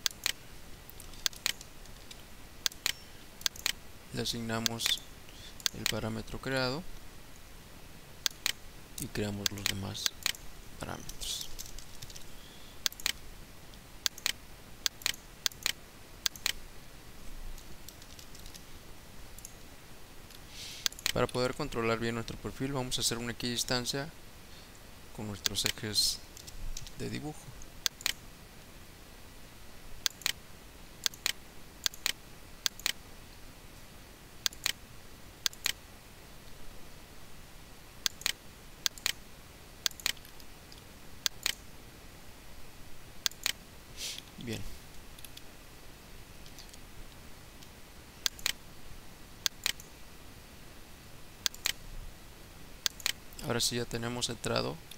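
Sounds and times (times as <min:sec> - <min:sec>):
computer mouse clicks: 0:00.0 - 0:03.8, 0:05.6 - 0:06.1, 0:08.2 - 0:13.2, 0:14.0 - 0:16.6, 0:17.5 - 0:18.6, 0:19.4 - 0:19.6, 0:20.3 - 0:21.3, 0:27.6 - 0:28.2, 0:30.0 - 0:30.4, 0:31.0 - 0:33.0, 0:34.4 - 0:34.8, 0:35.4 - 0:35.8, 0:38.0 - 0:39.2, 0:39.8 - 0:41.7, 0:43.2 - 0:43.6, 0:47.6 - 0:48.6, 0:49.4 - 0:49.9, 0:51.4 - 0:51.8, 0:52.8 - 0:53.4
keyboard clicks: 0:00.0 - 0:03.8, 0:05.6 - 0:06.1, 0:08.2 - 0:13.2, 0:14.0 - 0:16.6, 0:20.8 - 0:21.3, 0:27.6 - 0:28.2, 0:30.0 - 0:30.4, 0:31.0 - 0:33.0, 0:34.4 - 0:34.8, 0:35.4 - 0:35.8, 0:38.0 - 0:39.2, 0:39.8 - 0:40.5, 0:41.2 - 0:41.6, 0:43.2 - 0:43.6, 0:48.2 - 0:48.6, 0:49.4 - 0:49.9, 0:51.4 - 0:51.8, 0:52.8 - 0:53.2.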